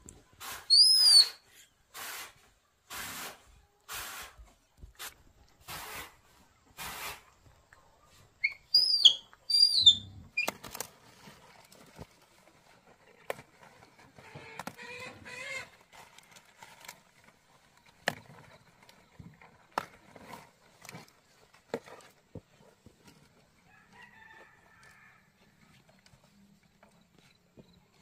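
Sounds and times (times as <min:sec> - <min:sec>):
baby monkey squealing: 0:00.7 - 0:01.4, 0:08.4 - 0:10.5.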